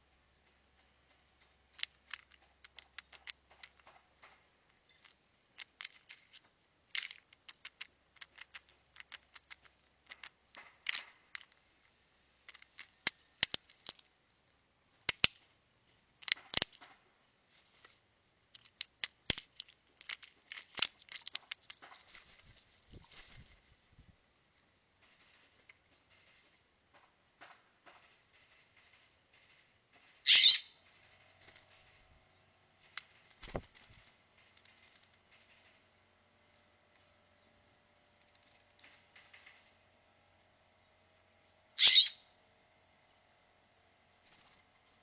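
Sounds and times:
beaks tapping peanut shells on stone: 0:01.7 - 0:11.7, 0:12.4 - 0:14.1, 0:15.0 - 0:15.4, 0:16.2 - 0:17.0, 0:18.5 - 0:22.2.

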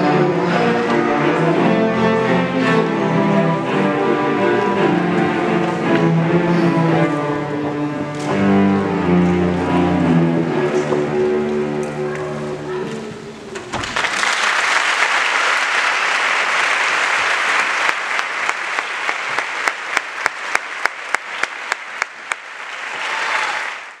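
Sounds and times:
audience applauding: 0:13.7 - 0:24.0.

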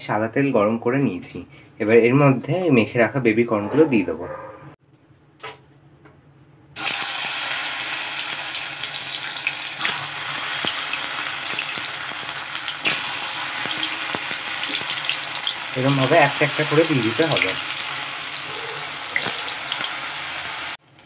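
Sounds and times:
oil pops and crackles: 0:06.8 - 0:15.7, 0:19.2 - 0:20.0
food deep-frying in oil: 0:06.8 - 0:21.0.

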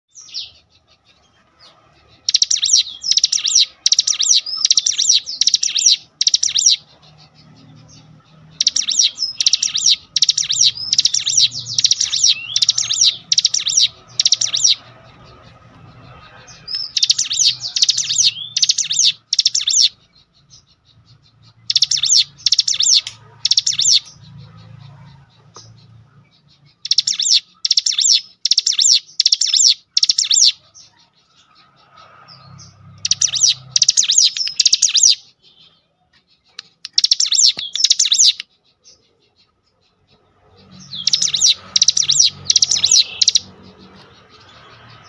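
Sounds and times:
songbird high chirping: 0:00.1 - 0:45.0.

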